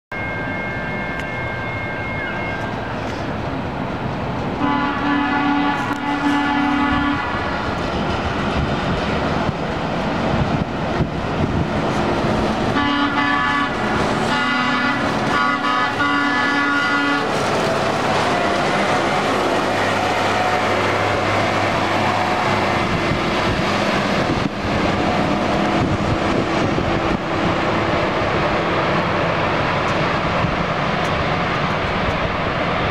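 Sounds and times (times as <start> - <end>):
track machine rolling on rails: 0.2 - 32.9
track machine horn blasts: 4.6 - 7.3, 12.8 - 17.3.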